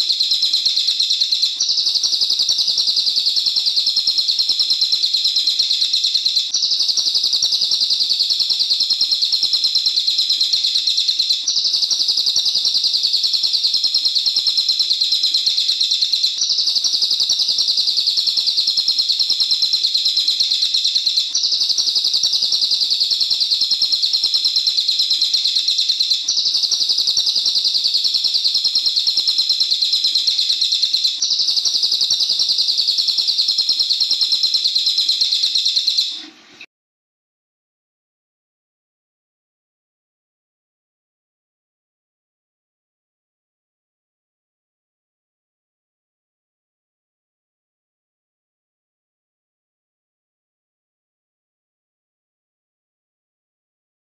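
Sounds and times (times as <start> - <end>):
bird rattling trill: 0.2 - 36.2.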